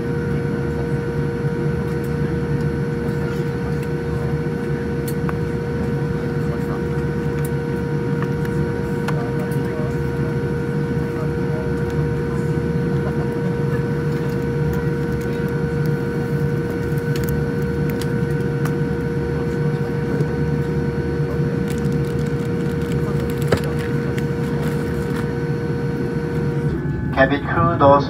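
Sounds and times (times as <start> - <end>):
airliner cabin rumble and hum: 0.0 - 28.0
high whine: 11.1 - 28.0.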